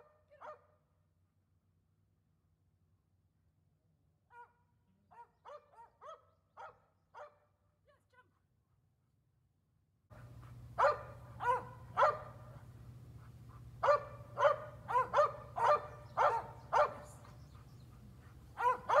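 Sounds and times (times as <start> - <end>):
dog barking: 0.3 - 0.7, 4.3 - 7.5, 10.2 - 17.6, 18.2 - 19.0
steady low hum: 10.1 - 19.0.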